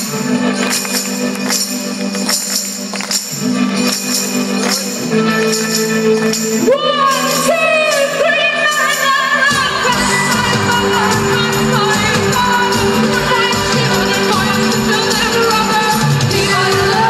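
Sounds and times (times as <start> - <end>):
live band music: 0.0 - 17.0
person singing: 6.6 - 17.0.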